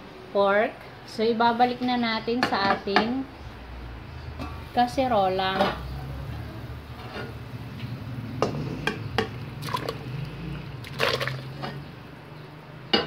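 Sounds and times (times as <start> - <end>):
meat splashing into broth: 9.6 - 11.7.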